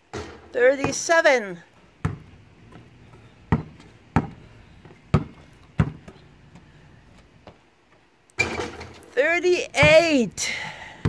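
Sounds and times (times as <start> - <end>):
basketball bouncing on asphalt: 0.1 - 1.1, 1.9 - 7.6, 9.7 - 10.3.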